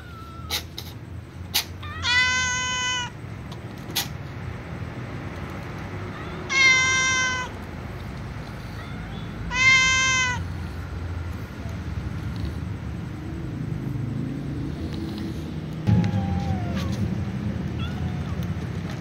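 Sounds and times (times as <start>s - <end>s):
cat meowing: 0.0s - 0.9s, 1.6s - 3.2s, 6.1s - 7.6s, 8.5s - 10.7s, 15.9s - 17.1s, 17.7s - 18.6s.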